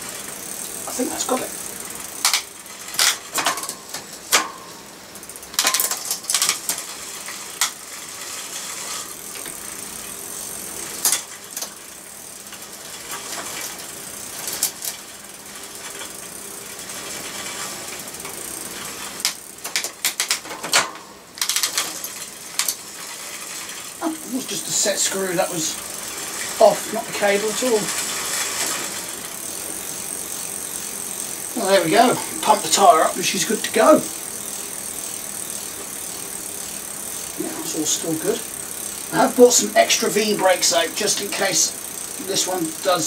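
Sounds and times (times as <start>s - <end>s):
bicycle chain whirring and ticking: 0.0s - 43.0s.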